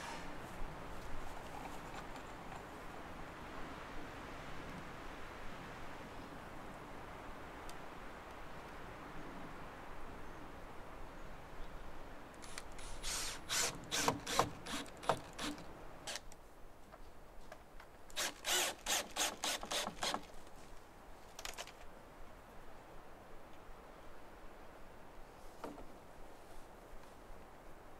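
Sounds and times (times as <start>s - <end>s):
cordless drill whirring: 12.5s - 15.5s, 18.2s - 20.2s.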